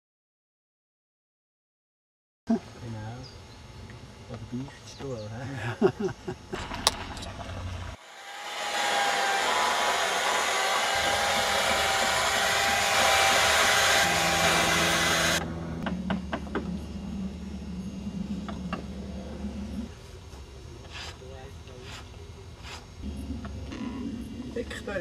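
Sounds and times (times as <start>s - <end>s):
chainsaw running: 6.6s - 16.6s
quiet steady hum: 15.4s - 25.0s.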